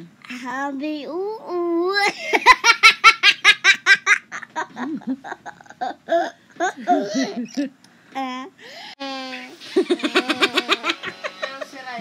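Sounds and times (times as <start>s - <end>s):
toddler girl laughing: 9.7s - 11.5s.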